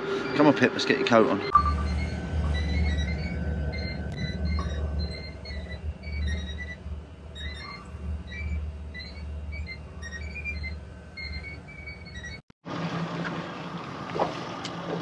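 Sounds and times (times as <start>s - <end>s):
outboard motor rumbling: 0.0s - 15.0s
short high-pitched beeps: 1.5s - 3.2s.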